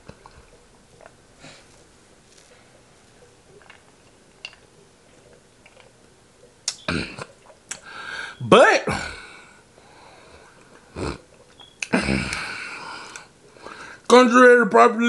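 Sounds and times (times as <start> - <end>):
mouth clicks: 3.2 - 7.9, 10.6 - 13.8
loud breath out: 7.8 - 10.5.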